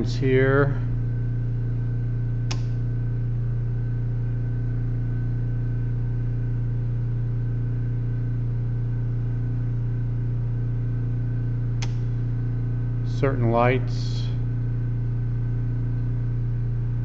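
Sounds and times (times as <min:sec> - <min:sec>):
generator engine droning: 0:00.0 - 0:17.0
circuit breaker click: 0:02.4 - 0:02.9, 0:11.8 - 0:12.3.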